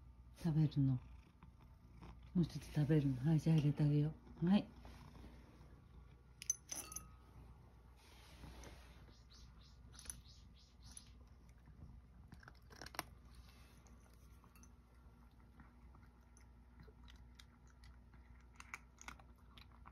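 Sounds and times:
cat crunching dry kibble: 11.3s - 19.9s.

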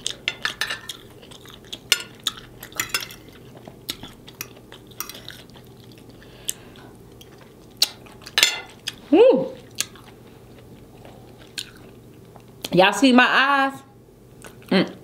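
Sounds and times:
fork clinking against a plate: 0.3s - 1.0s, 1.9s - 3.4s, 4.0s - 5.4s.

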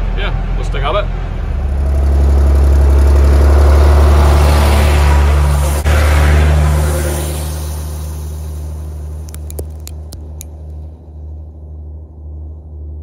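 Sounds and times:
tractor engine passing by: 0.0s - 12.8s
sharp click: 9.3s - 10.8s.

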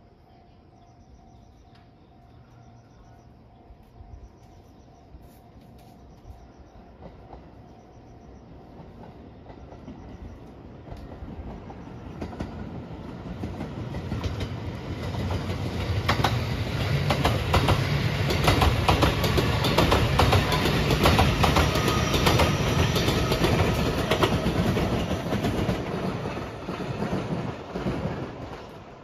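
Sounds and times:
train passing at speed: 0.0s - 29.0s
wheels clicking over rail joints: 8.7s - 29.0s.

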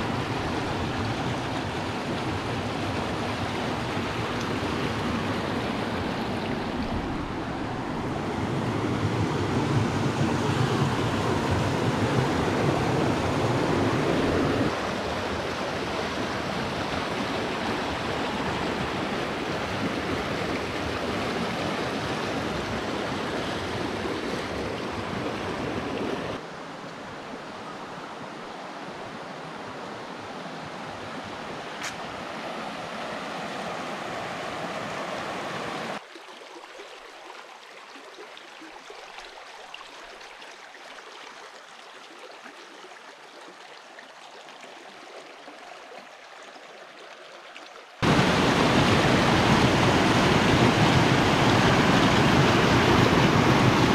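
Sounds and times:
water rushing over rocks: 0.0s - 26.5s, 48.0s - 53.9s.

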